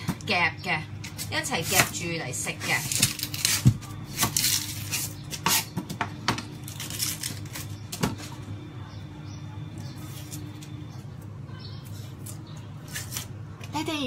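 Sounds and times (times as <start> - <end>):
onion skin crackling: 2.6 - 5.7, 6.4 - 8.4, 11.8 - 13.5.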